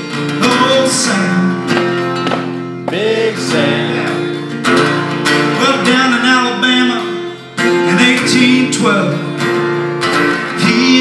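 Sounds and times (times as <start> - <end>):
acoustic guitar strumming: 0.0 - 11.0
person singing: 2.8 - 9.3, 10.5 - 11.0.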